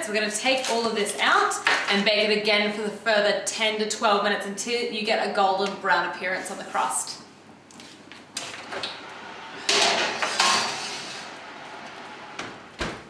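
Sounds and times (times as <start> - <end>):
dish scraping on oven rack: 8.4 - 12.5
oven door shutting thud: 12.3 - 13.0.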